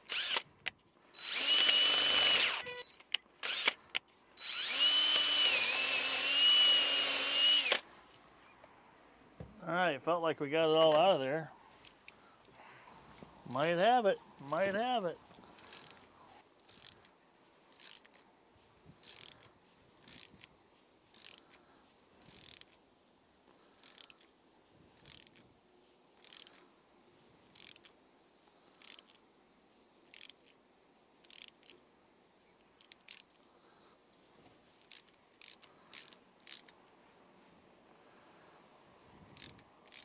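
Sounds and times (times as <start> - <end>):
hand ratchet clicking: 0.0 - 7.8, 15.6 - 17.1, 17.8 - 18.2, 19.0 - 20.5, 21.1 - 21.6, 22.2 - 22.8, 23.8 - 24.3, 25.0 - 25.4, 26.2 - 26.6, 27.6 - 27.9, 28.8 - 29.2, 30.1 - 30.5, 31.2 - 31.8, 32.8 - 33.4, 34.8 - 36.8, 39.4 - 40.0.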